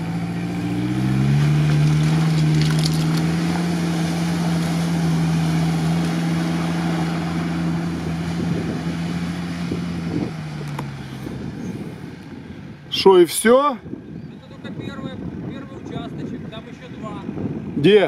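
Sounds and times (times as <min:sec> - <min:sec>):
truck engine droning at high revs: 0:00.0 - 0:12.9.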